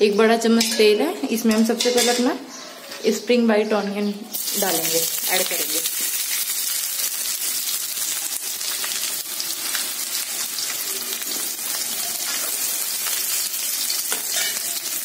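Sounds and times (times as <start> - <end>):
onions sizzling in hot oil: 4.3 - 15.0.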